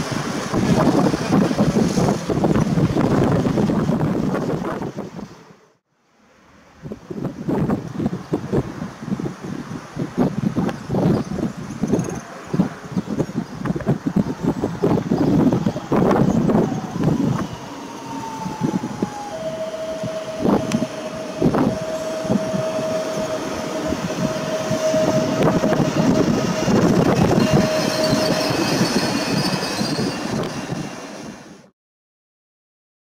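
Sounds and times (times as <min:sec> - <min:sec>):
train wheels rumbling on track: 0:00.0 - 0:05.4, 0:07.0 - 0:31.7
wind gusts on microphone: 0:00.0 - 0:05.6, 0:06.7 - 0:31.7
high electric whine: 0:14.8 - 0:29.1.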